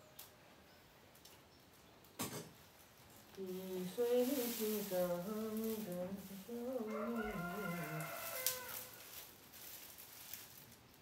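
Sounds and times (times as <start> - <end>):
person humming a tune: 3.4 - 7.4
rooster crowing: 6.6 - 9.2.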